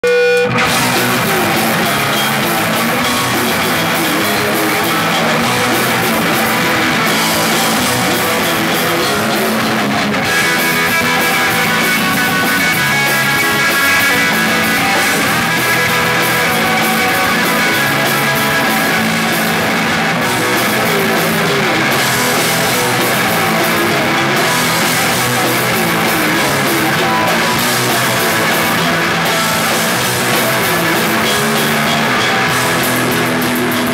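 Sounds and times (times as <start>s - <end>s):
drums: 0.0s - 33.9s
electric guitar strummed hard: 0.0s - 33.9s.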